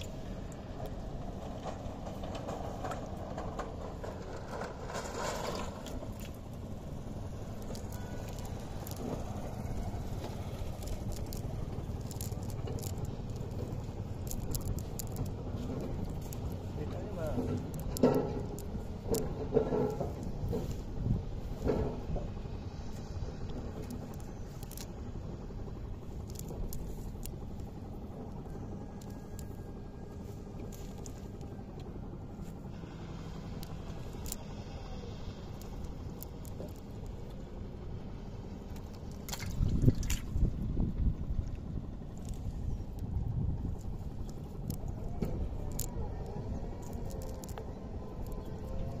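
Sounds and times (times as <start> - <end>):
steady low rumble: 0.0 - 49.0
net rustling through water plants: 5.3 - 16.7, 38.6 - 40.6.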